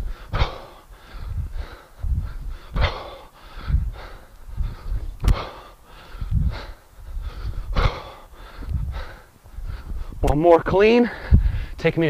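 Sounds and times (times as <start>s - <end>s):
man breathing hard: 0.0s - 11.8s
sharp click: 5.2s - 5.4s.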